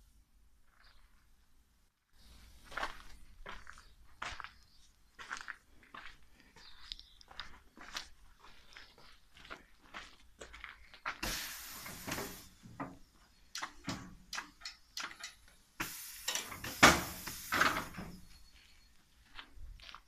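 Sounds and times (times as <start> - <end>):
compressed air hiss: 11.2 - 12.9, 15.8 - 18.2.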